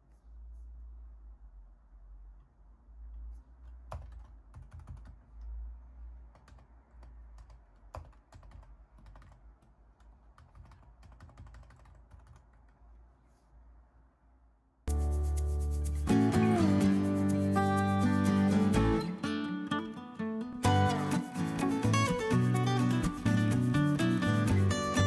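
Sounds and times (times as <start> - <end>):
mechanical keyboard typing: 3.9 - 5.3, 6.3 - 9.4, 10.4 - 12.7.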